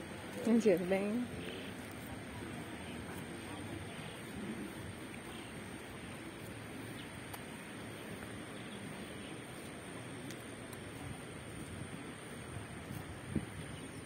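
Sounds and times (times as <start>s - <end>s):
background hiss: 0.0s - 14.0s
faint ticks: 7.0s - 8.8s, 9.6s - 10.9s.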